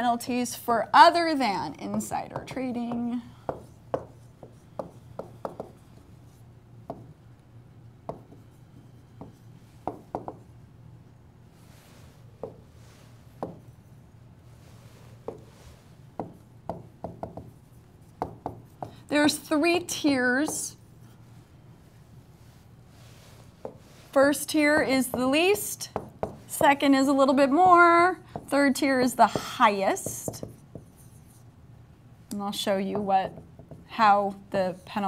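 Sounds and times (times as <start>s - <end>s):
faint steady hum: 0.0s - 35.0s
stylus tapping on tablet: 1.9s - 5.8s, 9.2s - 10.4s.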